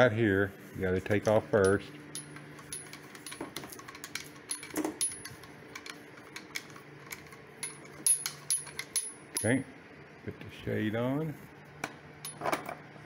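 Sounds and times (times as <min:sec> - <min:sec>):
metallic clicks and rattles: 0:01.6 - 0:09.6.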